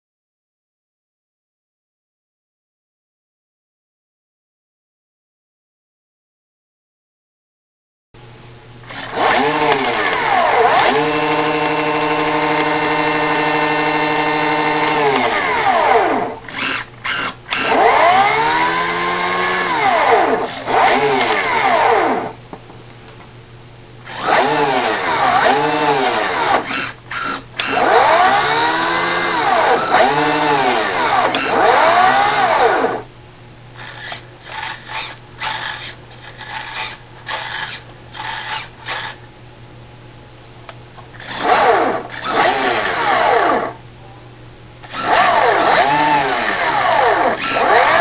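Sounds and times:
electric motor whine revving: 0:08.9 - 0:22.4, 0:24.1 - 0:33.1, 0:41.2 - 0:43.8, 0:44.9 - 0:48.0.

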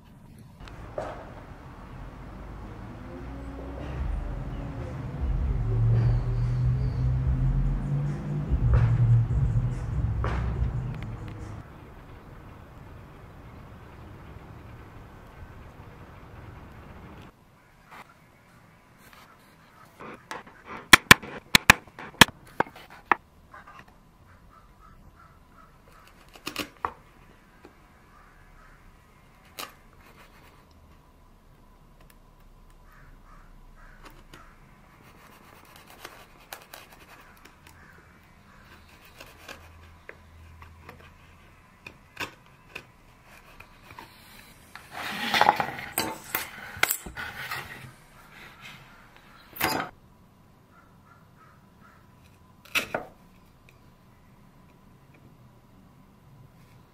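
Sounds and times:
chisel paring wood: 0:20.0 - 0:23.2, 0:41.8 - 0:44.1.

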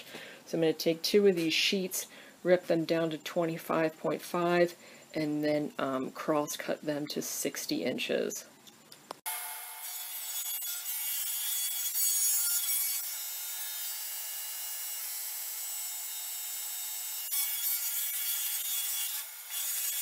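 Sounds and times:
table saw cutting plywood: 0:09.3 - 0:20.0.

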